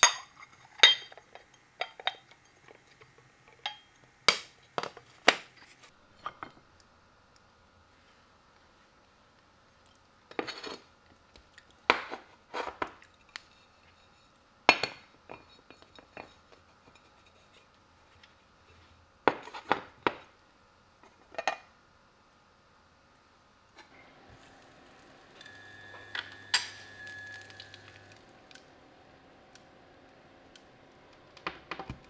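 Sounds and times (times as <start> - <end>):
ceramic bowl and plate clinking: 25.4 - 28.2.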